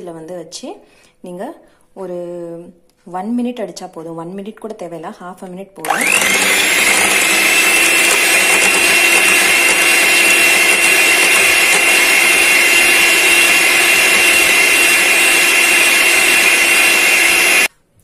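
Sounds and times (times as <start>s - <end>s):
electric hand mixer whine: 5.8s - 17.7s.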